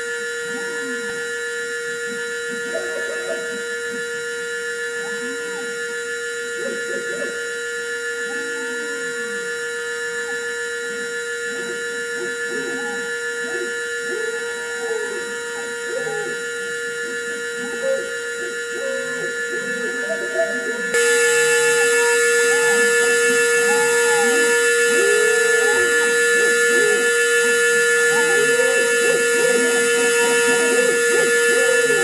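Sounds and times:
high-pitched spindle whine: 0.0 - 32.0
motors whining in rising pitch: 0.0 - 32.0.

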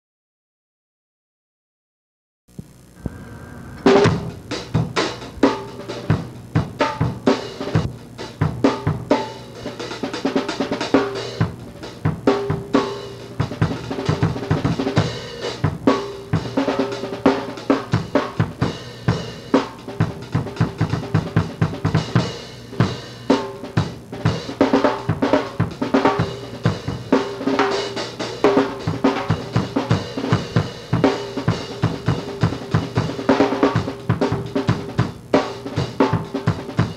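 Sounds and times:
bass drum: 2.6 - 8.6.

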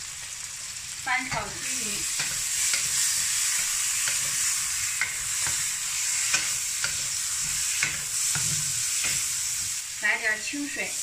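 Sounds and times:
prawns sizzling in hot oil: 0.0 - 11.0
spatula scraping and knocking wok: 1.3 - 9.9.

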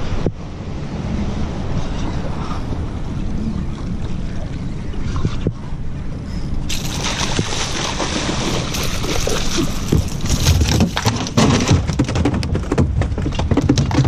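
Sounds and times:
fish splashing at water surface: 6.7 - 11.0
sharp knocks and thumps: 8.6 - 14.0.

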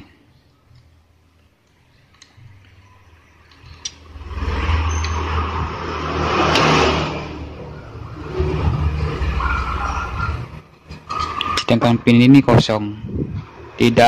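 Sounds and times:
motor vehicle engine passing: 3.6 - 11.0, 13.0 - 14.0.

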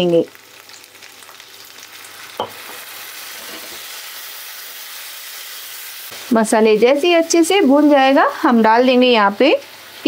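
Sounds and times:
onions sizzling in oil: 0.0 - 10.0.

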